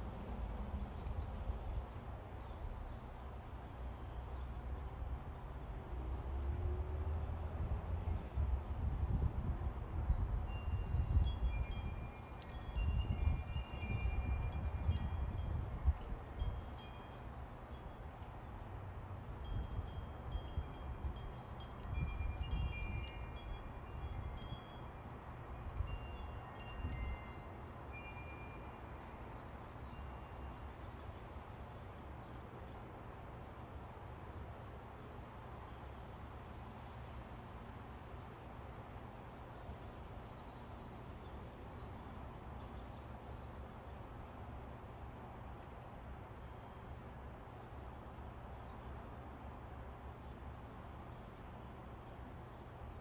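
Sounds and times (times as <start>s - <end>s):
metal wind chimes ringing: 10.2s - 30.7s.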